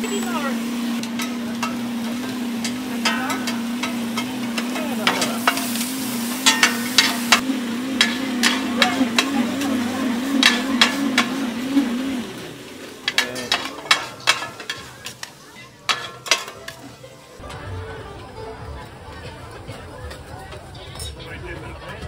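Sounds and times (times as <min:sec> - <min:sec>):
hot oil sizzling: 0:00.0 - 0:17.4
metal spatulas scraping a pan: 0:01.0 - 0:07.4, 0:08.0 - 0:11.9, 0:13.0 - 0:17.0.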